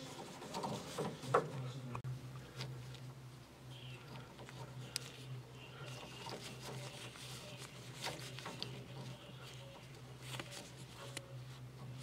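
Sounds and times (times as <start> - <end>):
gloved hand rustling wiring: 4.0 - 12.0.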